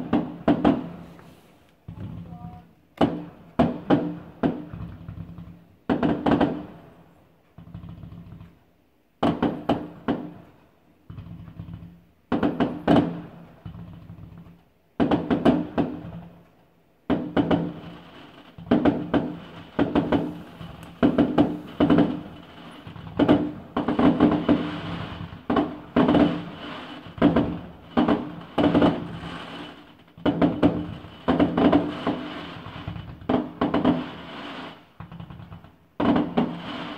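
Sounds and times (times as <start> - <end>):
fireworks bangs: 0.0 - 16.4, 17.0 - 36.9.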